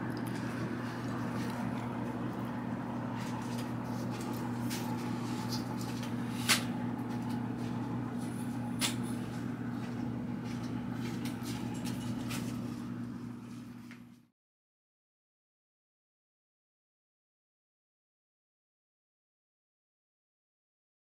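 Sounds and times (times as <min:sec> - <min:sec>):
steady low hum: 0:00.0 - 0:14.3.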